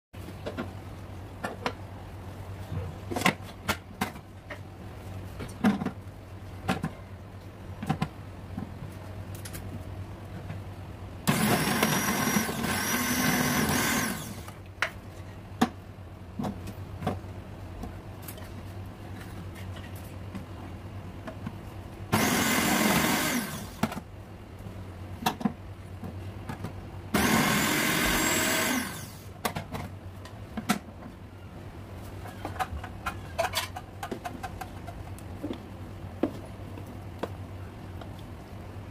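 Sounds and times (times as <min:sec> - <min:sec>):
food processor motor slicing: 0:11.3 - 0:14.6, 0:22.1 - 0:23.9, 0:27.2 - 0:29.2.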